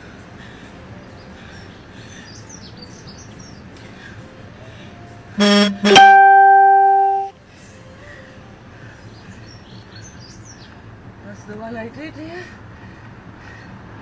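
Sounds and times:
ringing plucked note: 5.4 - 7.3
short buzzy tone: 5.4 - 7.3.

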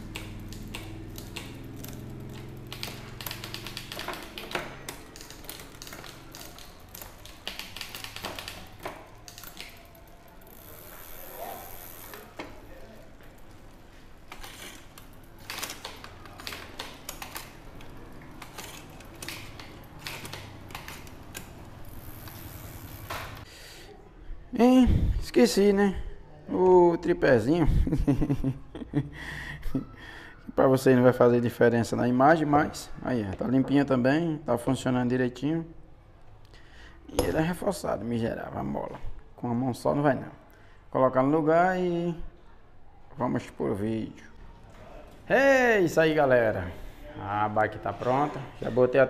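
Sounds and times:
bicycle parts clicking and ticking: 0.0 - 23.5.

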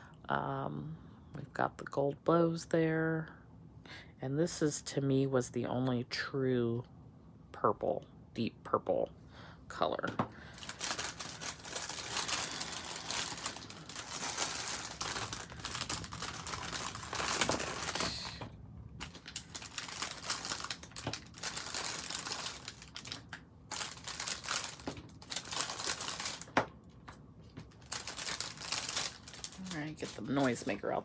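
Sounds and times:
plastic bag crinkling: 10.3 - 31.0.

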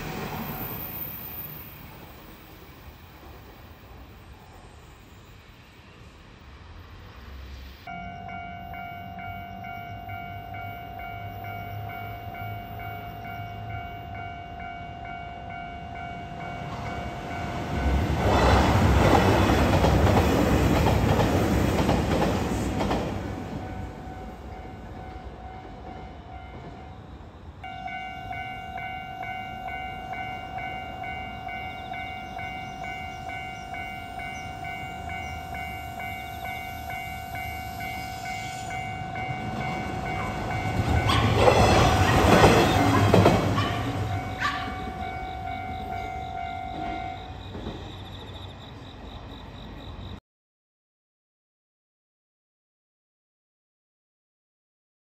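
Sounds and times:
diesel train clattering past: 0.0 - 50.2
level crossing bell ringing: 7.9 - 17.6, 27.6 - 41.4, 43.8 - 47.3.

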